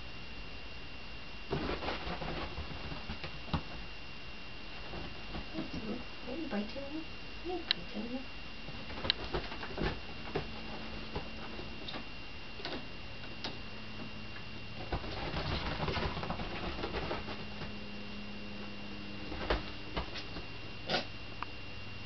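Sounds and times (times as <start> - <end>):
kitten paws tapping and thumping: 1.5 - 3.9, 4.8 - 6.0, 8.7 - 18.0, 19.2 - 20.6.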